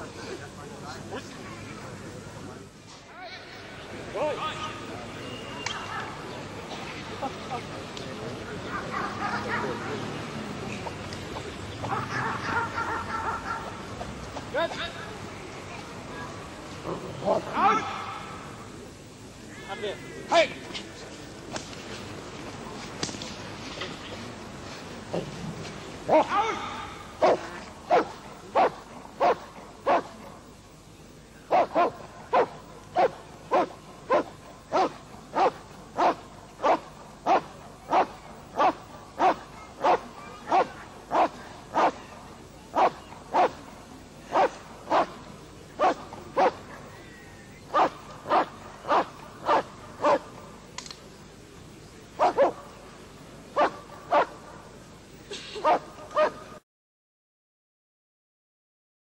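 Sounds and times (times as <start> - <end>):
dog barking: 11.9 - 13.7, 27.2 - 30.1, 31.5 - 42.0, 42.8 - 43.6, 44.3 - 45.2, 45.8 - 46.6, 47.7 - 50.3, 52.2 - 52.6, 53.6 - 54.4, 55.6 - 56.4.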